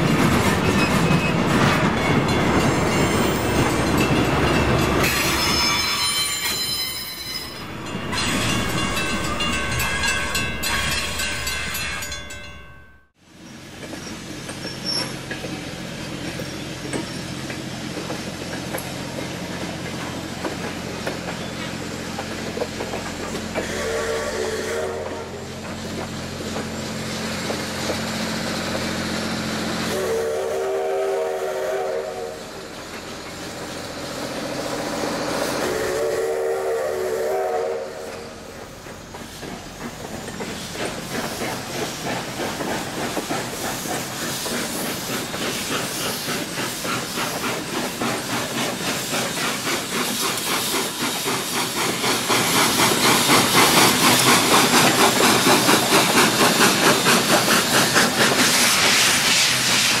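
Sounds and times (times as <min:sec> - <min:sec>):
steam locomotive chuffing: 0:00.0 - 1:00.0
steam locomotive whistle: 0:23.6 - 0:25.5, 0:29.8 - 0:32.6, 0:35.4 - 0:38.6.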